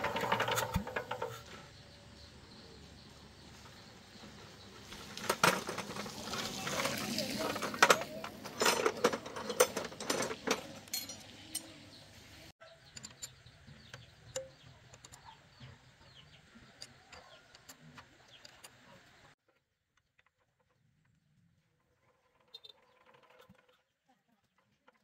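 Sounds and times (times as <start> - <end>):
tools clattering in toolbox: 0.0 - 1.4, 5.0 - 11.7
birds chirping faintly: 0.0 - 19.4.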